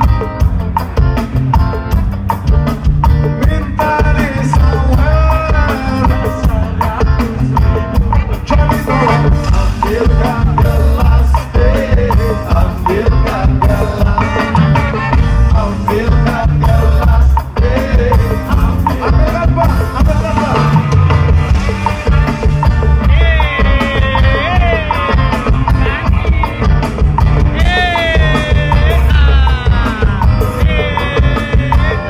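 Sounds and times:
ska band playing live: 0.0 - 32.0
person singing: 3.2 - 20.8, 23.0 - 32.0.

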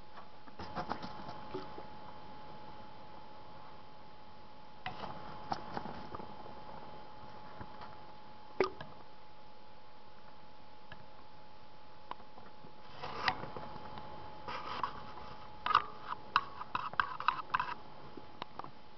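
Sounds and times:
faint steady hum: 0.0 - 18.9.

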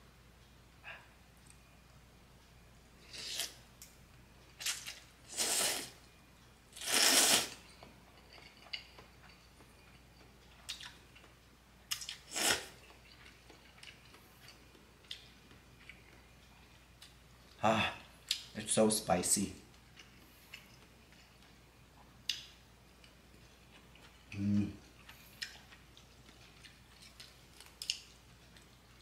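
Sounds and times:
person slurping noodles: 5.3 - 5.9, 6.8 - 7.6, 12.3 - 12.7.

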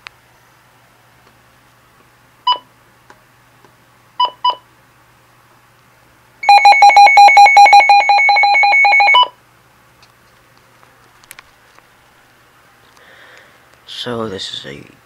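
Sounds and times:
rapid pulsing alarm tone: 6.4 - 9.3.

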